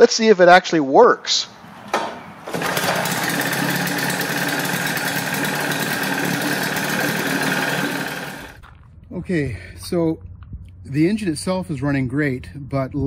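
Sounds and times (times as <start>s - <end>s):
outboard engine running: 2.5s - 8.6s.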